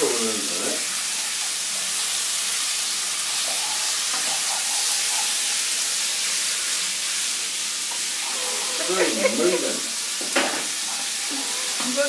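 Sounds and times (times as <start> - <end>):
chicken frying in hot oil: 0.0 - 12.0
wooden spoon stirring in pan: 3.4 - 7.3.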